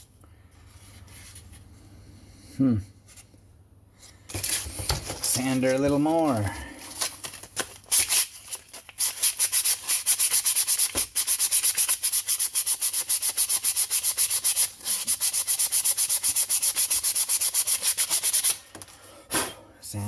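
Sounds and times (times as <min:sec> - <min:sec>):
sandpaper scratching plastic: 0:07.7 - 0:18.7.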